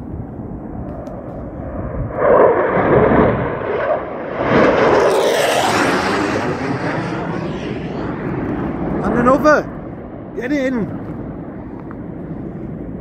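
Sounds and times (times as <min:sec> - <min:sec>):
jet fighter passing overhead: 0:00.0 - 0:13.0.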